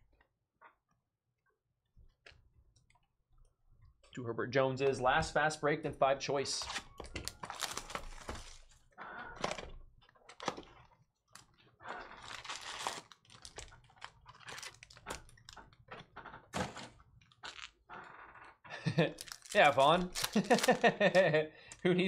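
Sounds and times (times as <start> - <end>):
foil packs crinkling: 6.7 - 8.8, 11.4 - 15.6, 18.9 - 21.3.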